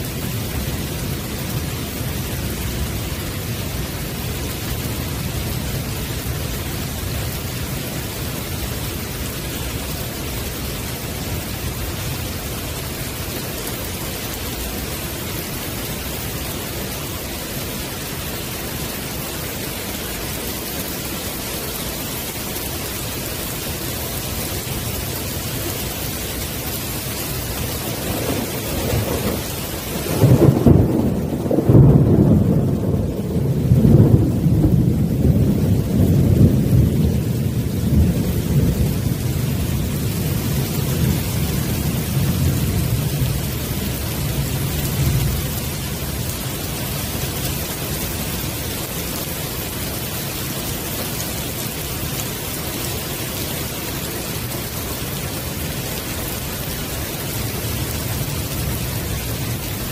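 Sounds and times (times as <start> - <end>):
heavy rain on wooden deck: 0.0 - 59.9
thunder rumbling: 25.1 - 59.9.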